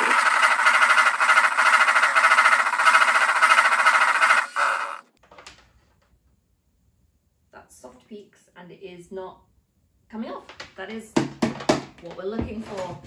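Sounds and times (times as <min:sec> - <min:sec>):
electric hand mixer whipping: 0:00.0 - 0:05.1.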